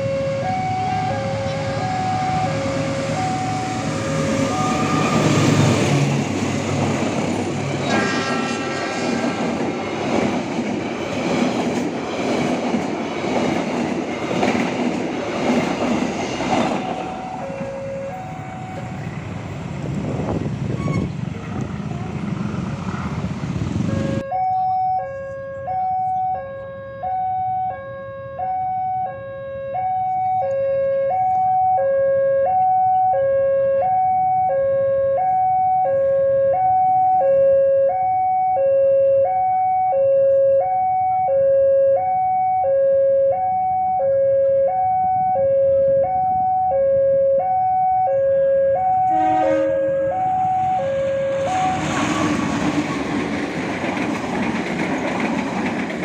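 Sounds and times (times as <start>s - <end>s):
two-tone crossing alarm: 0.0s - 6.1s, 16.7s - 19.3s, 23.9s - 52.4s
train wheels on rails: 1.3s - 24.2s, 48.8s - 56.0s.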